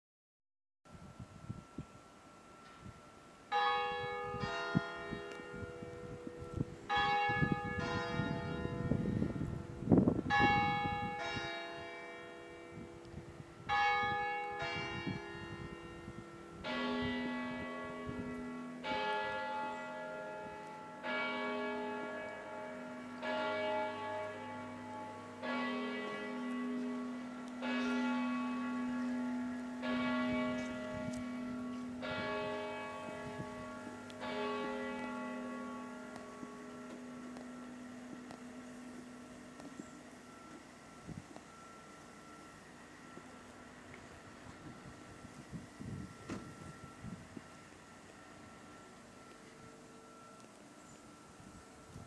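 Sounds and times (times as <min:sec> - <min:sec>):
church bells ringing: 0:00.9 - 0:52.0
deep bell tolling: 0:03.5 - 0:13.0, 0:13.7 - 0:43.8.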